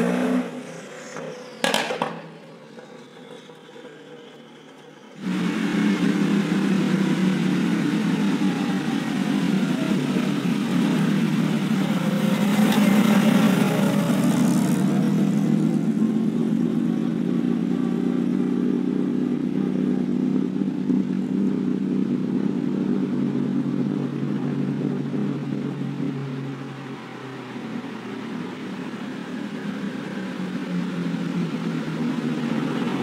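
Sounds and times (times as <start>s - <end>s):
racing car engine driving past: 0.0s - 21.2s
second car engine: 0.0s - 33.0s.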